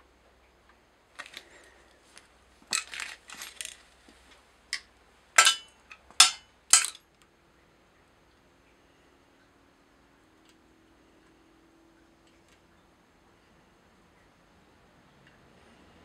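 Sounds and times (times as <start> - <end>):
metal parts clinking: 2.7 - 3.8, 5.4 - 7.0.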